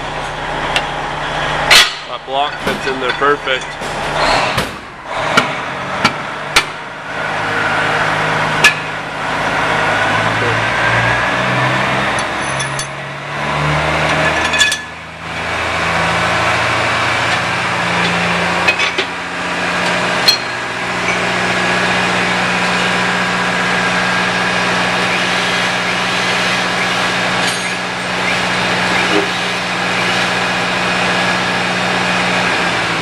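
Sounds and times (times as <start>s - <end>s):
machine motor humming: 15.2s - 33.0s.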